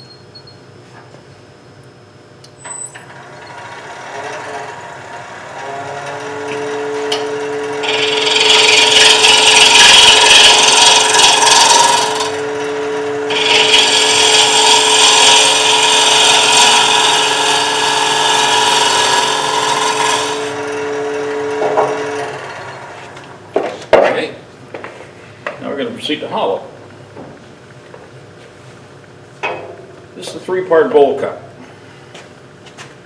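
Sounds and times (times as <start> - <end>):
wood lathe humming: 2.9 - 23.7
gouge cutting wood: 3.3 - 23.4.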